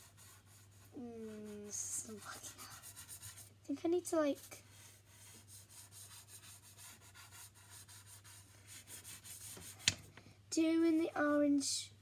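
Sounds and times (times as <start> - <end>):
pastel scrubbing on paper: 0.0 - 3.5, 4.2 - 9.9.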